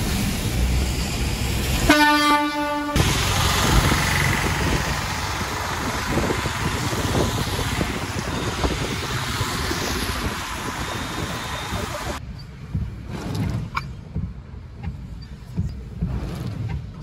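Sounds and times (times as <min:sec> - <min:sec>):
rain and tyre spray hiss: 0:00.0 - 0:12.2
heavy vehicle engine rumble: 0:00.0 - 0:17.0.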